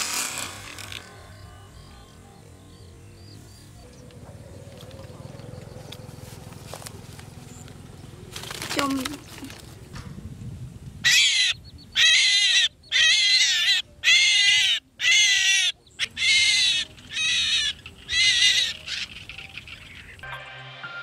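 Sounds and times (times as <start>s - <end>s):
small bird squawking: 11.0s - 20.2s.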